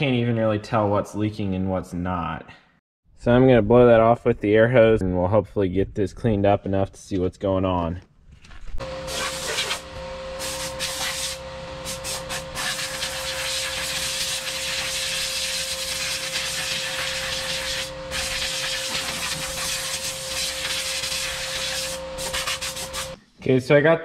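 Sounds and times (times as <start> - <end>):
steady tone: 8.8 - 23.2
air blow gun hissing: 9.1 - 23.2.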